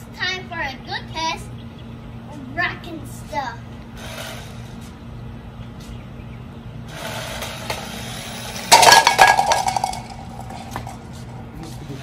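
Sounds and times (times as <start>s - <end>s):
toy car running on concrete: 4.0s - 4.8s, 6.9s - 12.0s
plastic bottles clattering: 8.7s - 11.0s.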